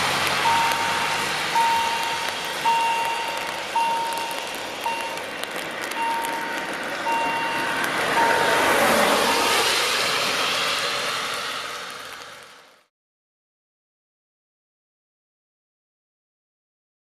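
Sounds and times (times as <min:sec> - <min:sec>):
broad rushing noise: 0:00.0 - 0:12.8
level crossing warning beeps: 0:00.4 - 0:05.2, 0:05.9 - 0:08.6.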